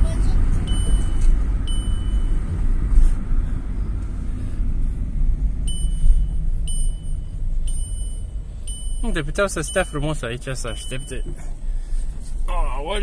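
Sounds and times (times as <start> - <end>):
car warning beep: 0.0 - 2.6, 5.6 - 11.6
car engine rumbling: 0.0 - 13.0.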